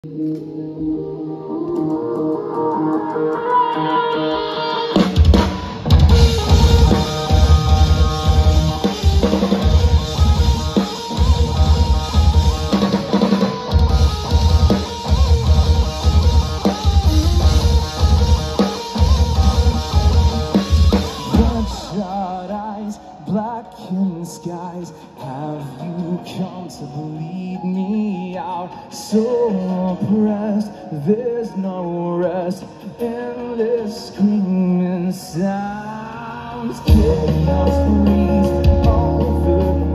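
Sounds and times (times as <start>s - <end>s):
live rock band playing: 0.6s - 24.6s, 35.4s - 39.9s.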